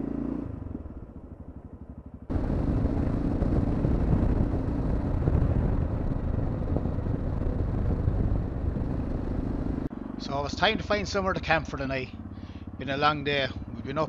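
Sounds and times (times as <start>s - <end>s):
motorcycle engine: 0.0s - 14.0s
wind rush: 2.3s - 9.9s.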